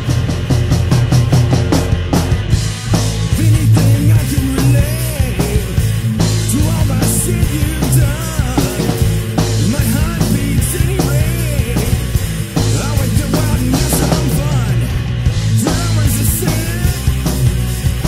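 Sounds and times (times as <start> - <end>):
alternative rock band playing: 0.0 - 18.0
person singing: 3.2 - 14.9, 15.5 - 17.2.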